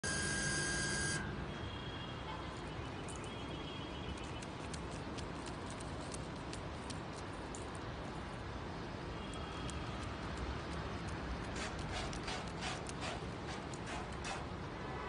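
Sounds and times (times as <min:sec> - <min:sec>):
faint high whine: 0:00.0 - 0:04.0
outdoor background noise: 0:00.0 - 0:15.0.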